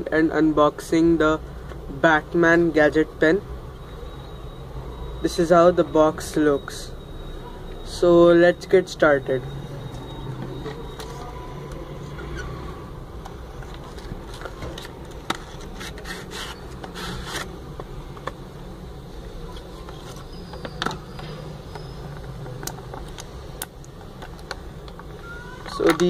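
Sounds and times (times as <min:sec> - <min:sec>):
cardboard box scraping: 0:15.4 - 0:17.5.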